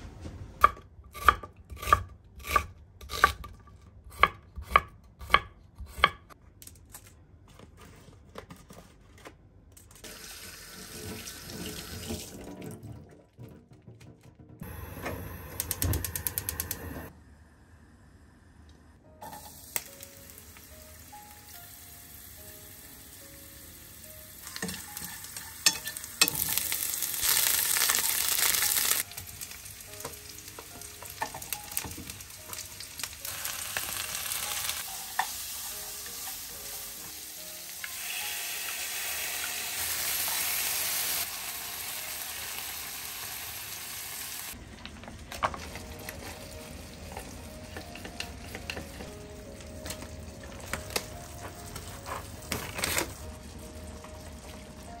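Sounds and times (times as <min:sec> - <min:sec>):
food sizzling in a frying pan: 0:19.2 - 0:44.6.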